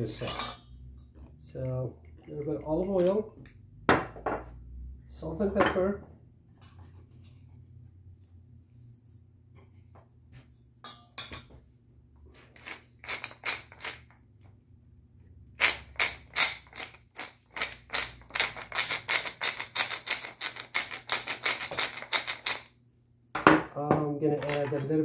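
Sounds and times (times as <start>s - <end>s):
pepper mill grinding: 12.5s - 14.2s, 15.6s - 22.7s.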